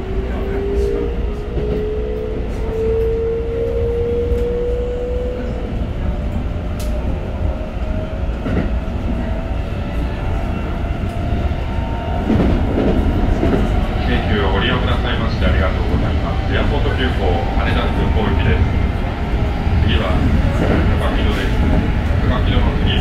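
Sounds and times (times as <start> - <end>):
wheels rumbling on rail: 0.0 - 23.0
rail clicks: 6.2 - 9.3, 9.9 - 23.0.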